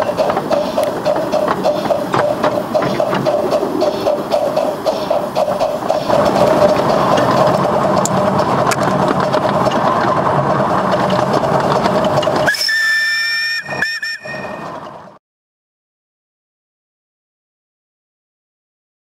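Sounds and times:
steam locomotive running: 0.0 - 15.2
steam whistle blowing: 12.4 - 14.8.

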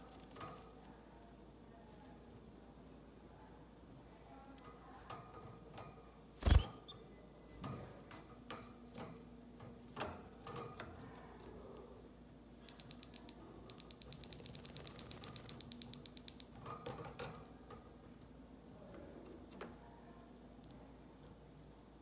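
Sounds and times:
rapid dry clicks: 12.7 - 16.5.

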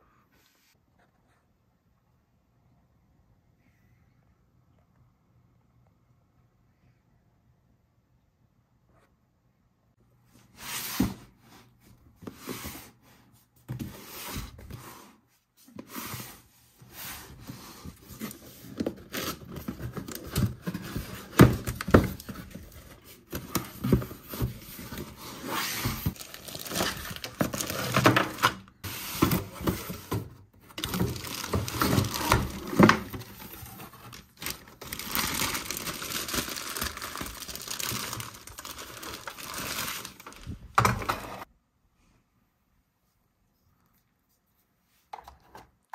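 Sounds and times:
packaging rustling and tearing: 18.2 - 30.0, 30.7 - 40.7.

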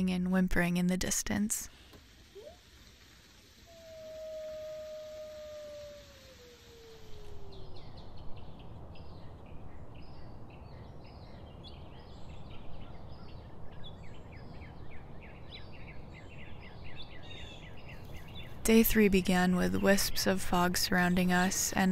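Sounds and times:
coyote howl: 3.6 - 8.2
small birds chirping: 3.7 - 21.9.

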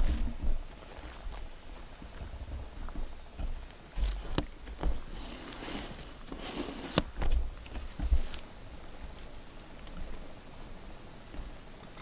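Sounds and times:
footsteps on dry brushy ground: 0.0 - 6.4
clothing and gear rustling: 4.0 - 8.5.

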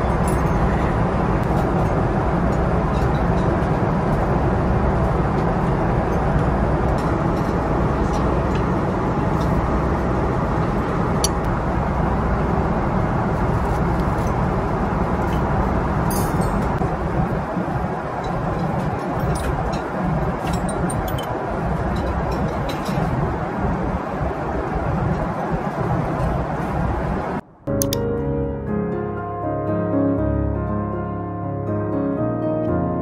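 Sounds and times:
airliner cabin roar: 0.0 - 33.0.

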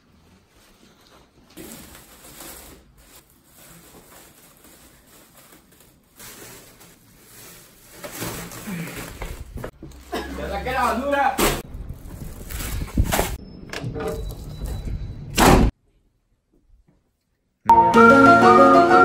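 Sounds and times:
plastic bag rustling: 0.0 - 13.4.

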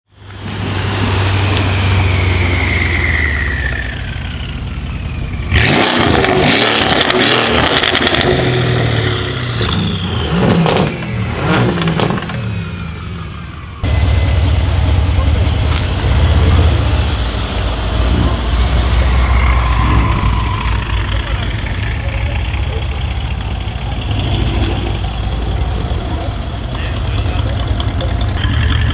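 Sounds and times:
car engine droning: 0.1 - 28.9
engine revving: 0.4 - 28.9
turbo whistle: 1.5 - 6.0, 18.7 - 22.2
exhaust crackles and pops: 2.7 - 8.8, 9.4 - 12.5, 14.8 - 28.9.

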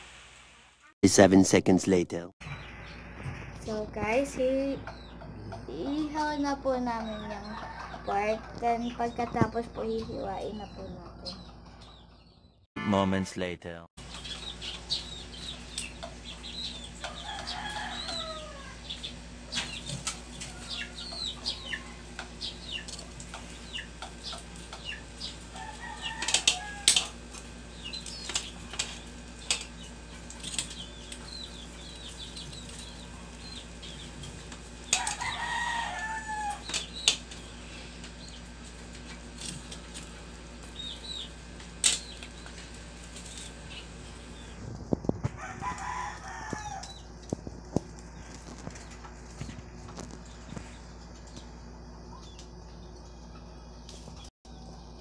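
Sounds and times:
birds chirping: 2.4 - 12.7, 13.7 - 44.8, 45.8 - 55.0
loud bird calls: 14.0 - 38.6
tongs clicking on grill grate: 26.1 - 27.5.

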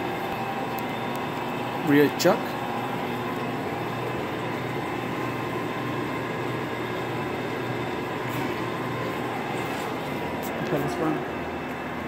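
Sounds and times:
machine hum and hiss: 0.0 - 12.0.

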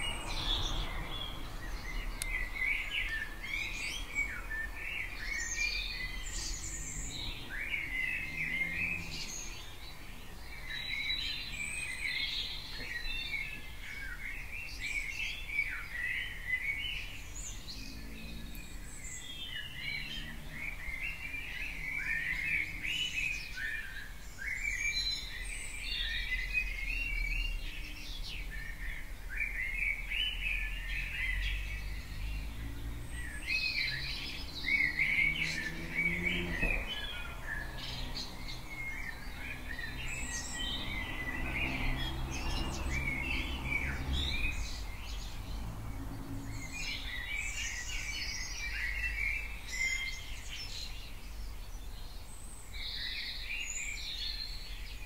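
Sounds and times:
songbirds singing and chirping: 0.0 - 55.0.

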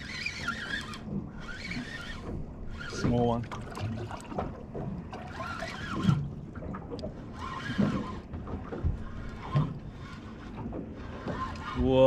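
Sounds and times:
water slapping boat hull: 0.0 - 12.0
low knocks on boat: 2.1 - 5.3, 5.9 - 9.9.

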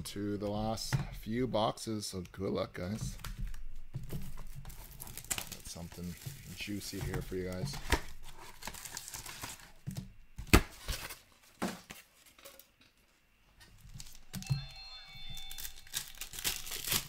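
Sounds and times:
foil wrappers crinkling: 2.9 - 9.9, 13.7 - 14.4, 15.2 - 17.0.

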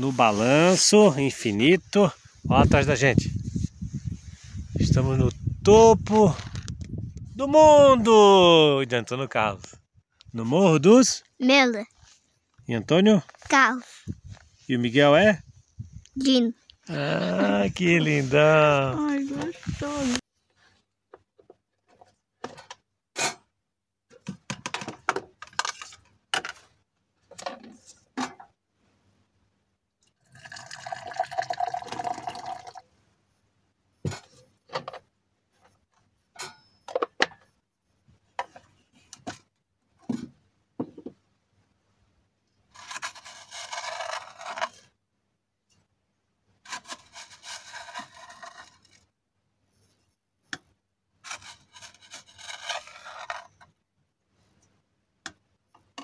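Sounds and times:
liquid pouring into cup: 30.3 - 32.8.

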